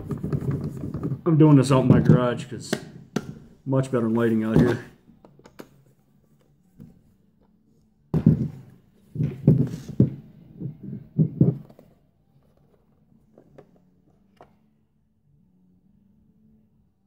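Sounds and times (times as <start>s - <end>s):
plastic case thuds and clatter: 0.0s - 2.3s, 4.4s - 4.9s, 8.1s - 11.9s.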